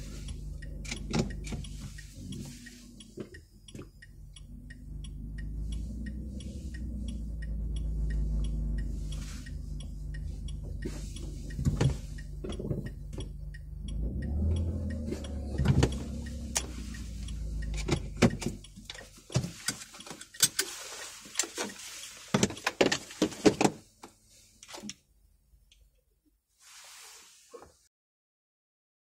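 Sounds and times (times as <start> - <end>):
car engine hum: 0.0 - 26.0
sharp clicks and knocks: 0.2 - 20.7.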